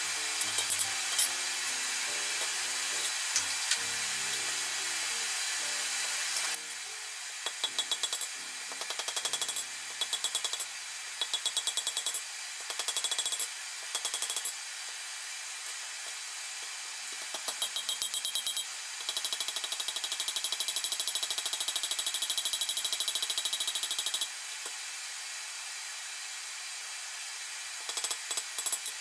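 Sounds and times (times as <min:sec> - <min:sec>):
steady hiss: 0:00.0 - 0:18.2
hammer striking iron on anvil: 0:00.4 - 0:01.4, 0:07.5 - 0:12.2.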